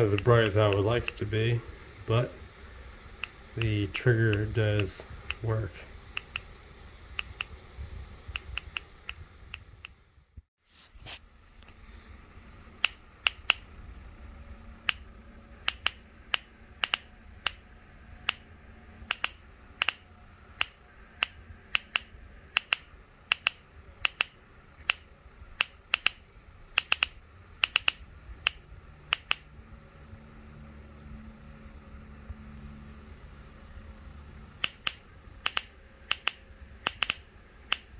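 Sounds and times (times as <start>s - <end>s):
electric spark snapping: 0.0s - 1.3s, 6.1s - 6.5s, 7.1s - 7.6s, 12.8s - 13.7s, 14.8s - 17.6s, 19.1s - 26.2s, 26.8s - 29.5s, 34.6s - 37.9s.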